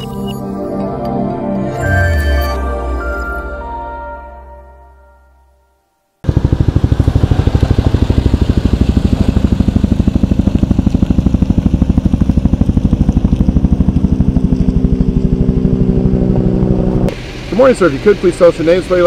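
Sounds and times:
helicopter rotor beating: 0:06.2 - 0:19.0.

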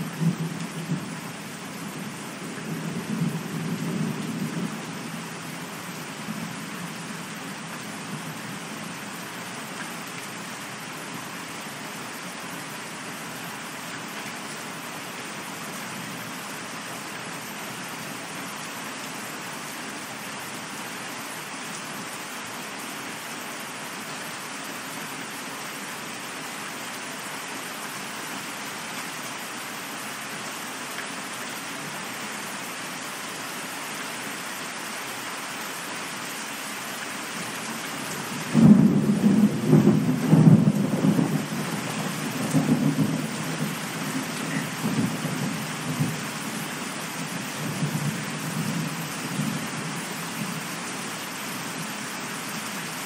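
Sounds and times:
steady rain falling: 0:00.0 - 0:53.0
rumbling thunder: 0:38.4 - 0:46.2.

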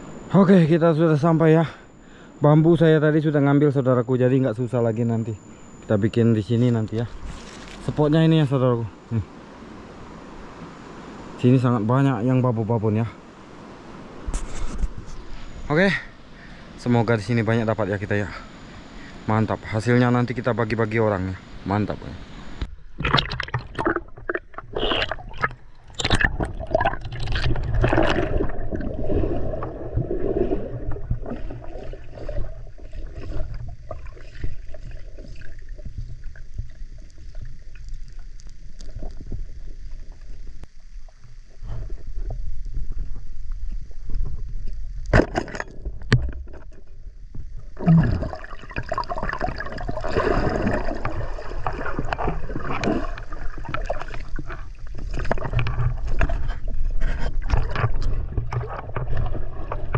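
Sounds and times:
river water gurgling and sloshing: 0:15.0 - 0:44.5, 0:47.8 - 0:59.9
knocks and scrapes: 0:54.4 - 0:59.9.

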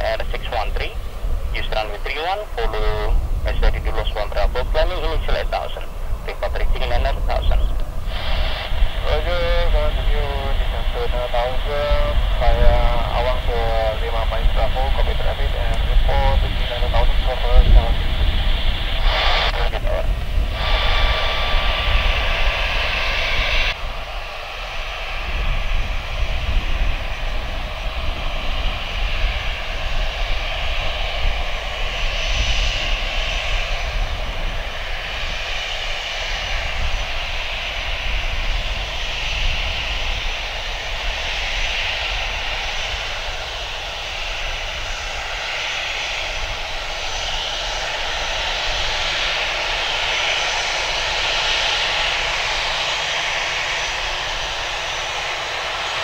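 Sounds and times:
radio static burst: 0:00.0 - 0:23.6
jet engines running at taxi power: 0:00.0 - 0:56.0.

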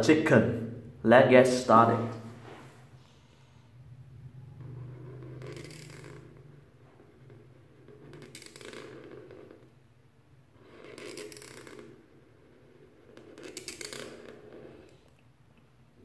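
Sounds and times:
marker rubbing across paper: 0:04.6 - 0:09.8, 0:10.5 - 0:15.2.

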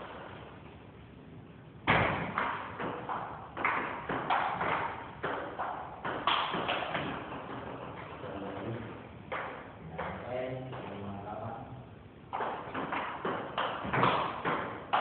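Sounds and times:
ball bouncing on table: 0:01.8 - 0:08.4, 0:09.3 - 0:11.0, 0:12.3 - 0:15.0
table tennis ball hitting paddles: 0:01.8 - 0:11.0, 0:12.3 - 0:15.0.

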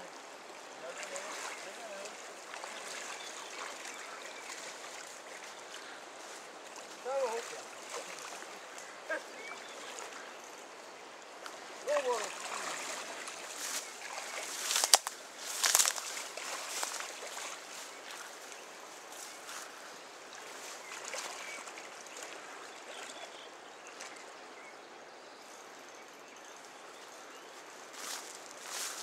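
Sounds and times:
fast-flowing river rushing: 0:00.0 - 0:15.3.

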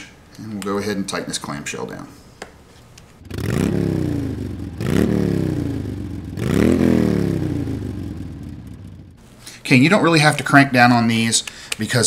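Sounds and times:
motorcycle engine revving: 0:03.2 - 0:09.2.

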